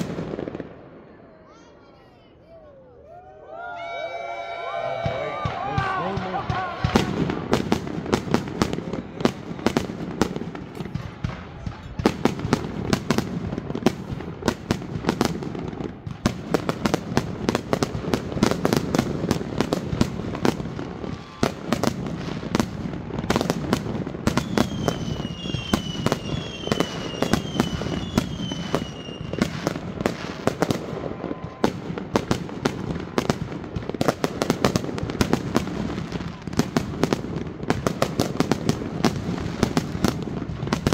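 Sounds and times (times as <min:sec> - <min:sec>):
firework bursting cracks: 0:00.0 - 0:00.8, 0:05.0 - 0:40.9
falling firework whistles: 0:24.3 - 0:32.3.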